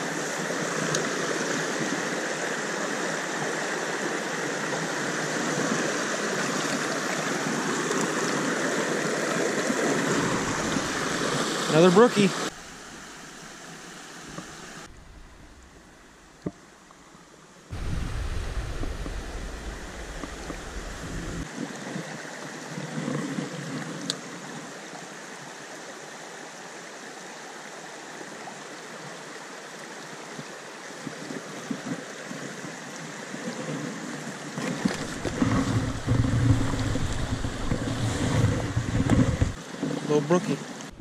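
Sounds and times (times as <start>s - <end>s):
stream rushing over rocks: 0.0s - 41.0s
wind buffeting microphone: 14.9s - 16.3s, 17.7s - 21.5s, 35.0s - 39.6s
microphone handling knocks: 35.0s - 39.6s.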